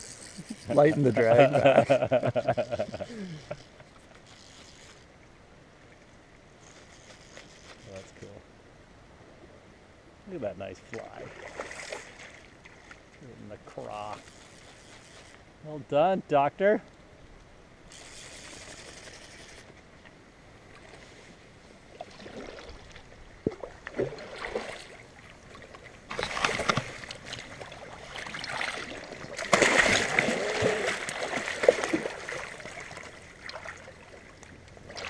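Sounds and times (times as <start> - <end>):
wading through water: 10.9 - 15.4, 20.6 - 35.0
fish thrashing in water: 22.1 - 34.3.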